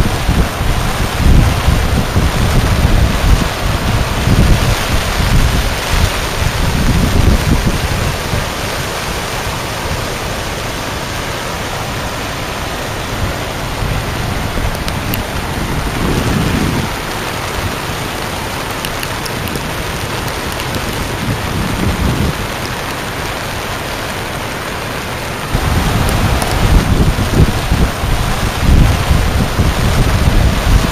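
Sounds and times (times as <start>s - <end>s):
wind rumble on microphone: 0.0s - 24.8s, 25.4s - 30.9s
floodwater rushing: 0.0s - 30.9s.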